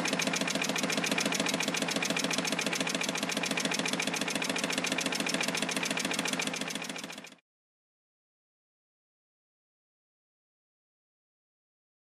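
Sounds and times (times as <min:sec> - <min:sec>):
engine mechanical clatter: 0:00.0 - 0:07.4.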